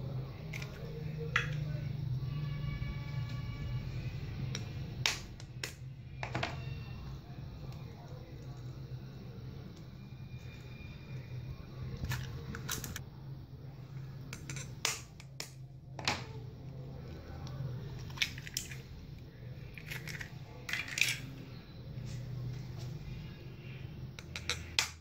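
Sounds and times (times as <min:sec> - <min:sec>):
eggshells cracking: 0:19.6 - 0:21.3.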